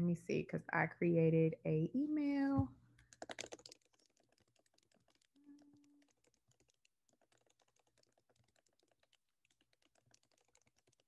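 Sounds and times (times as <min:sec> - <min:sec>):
keyboard typing clicks: 0:03.0 - 0:11.0.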